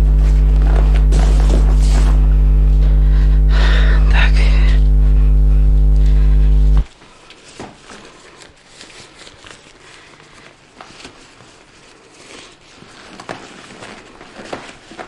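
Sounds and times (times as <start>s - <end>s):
fabric rustling: 0.1s - 3.0s, 6.8s - 15.0s.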